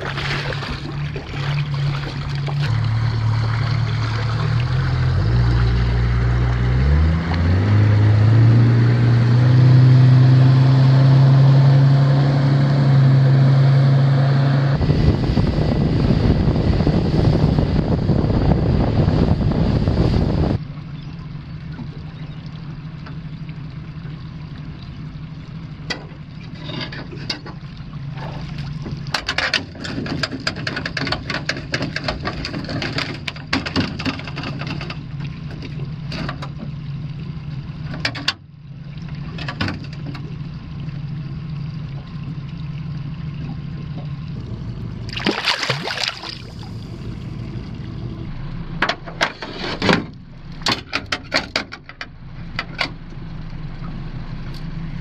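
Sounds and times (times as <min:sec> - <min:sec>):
water splashing and dripping: 0:00.0 - 0:11.2, 0:20.6 - 0:48.3
steady low hum: 0:34.3 - 0:50.7.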